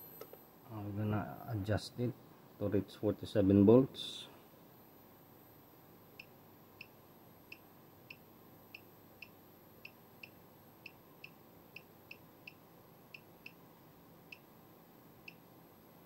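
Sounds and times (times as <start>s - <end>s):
faint steady hiss: 0.0s - 16.0s.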